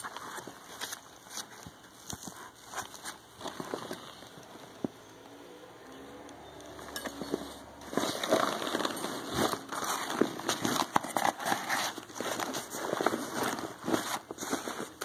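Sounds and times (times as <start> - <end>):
nylon fabric rustling: 7.0 - 15.0.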